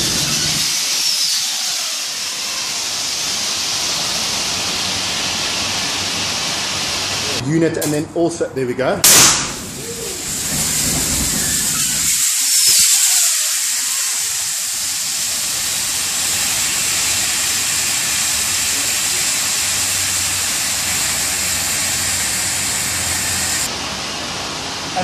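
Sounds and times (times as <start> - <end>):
fire suppressant hissing: 9.0 - 23.7.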